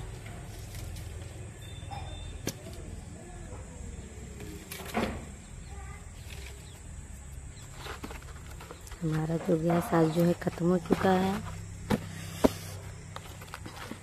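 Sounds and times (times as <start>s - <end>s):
faint distant voices: 0.0s - 8.0s.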